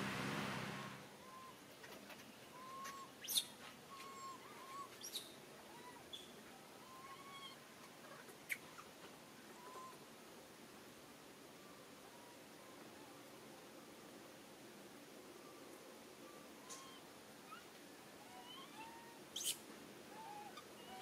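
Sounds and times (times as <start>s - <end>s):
faint short chirping calls: 1.2s - 10.0s, 15.4s - 21.0s.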